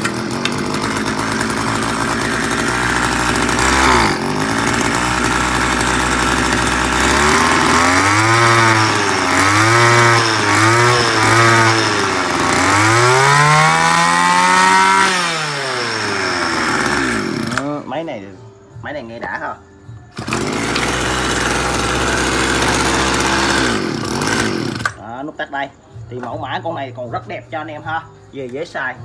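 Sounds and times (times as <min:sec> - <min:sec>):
brush cutter engine revving: 0:00.0 - 0:18.1, 0:20.1 - 0:25.0.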